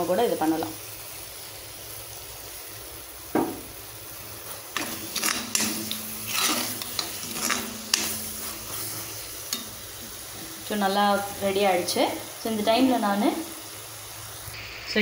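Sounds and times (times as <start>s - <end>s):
soft sizzle: 0.0s - 15.0s
metal spatula scraping pan: 4.7s - 10.8s.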